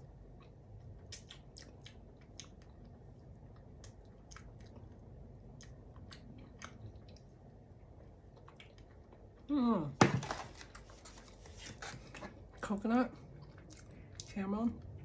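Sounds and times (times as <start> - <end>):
faint low hum: 0.0 - 15.0
person chewing pretzel: 0.2 - 9.4, 13.2 - 14.3.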